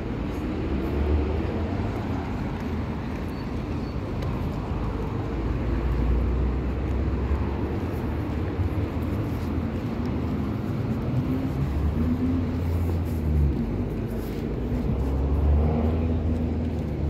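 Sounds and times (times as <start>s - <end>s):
city street traffic rumble: 0.0s - 17.0s.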